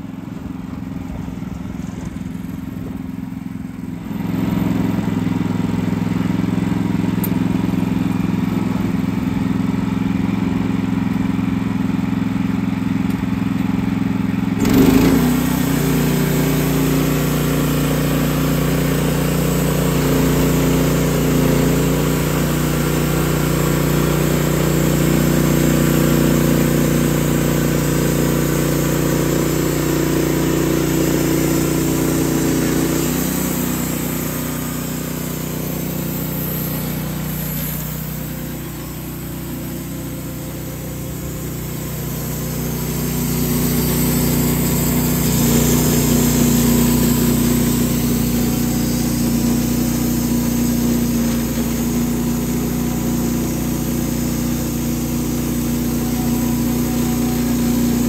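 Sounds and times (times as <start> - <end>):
gas engine running: 0.0 - 58.0
band saw blade sawing wood: 14.6 - 58.0.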